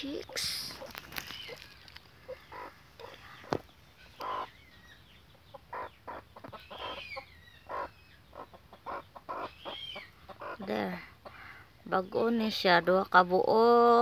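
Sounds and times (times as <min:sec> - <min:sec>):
chicks peeping: 0:00.0 - 0:11.8
chickens clucking: 0:00.0 - 0:12.1.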